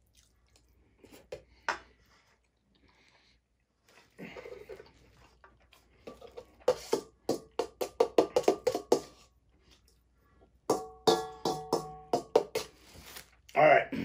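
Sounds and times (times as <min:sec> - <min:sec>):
metal spoon clinking on bowl: 0:10.7 - 0:12.2.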